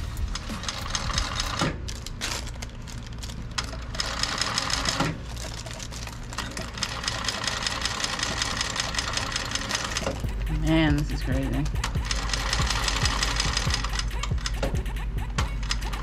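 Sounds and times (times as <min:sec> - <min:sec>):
sewing machine stitching: 0:03.6 - 0:10.8.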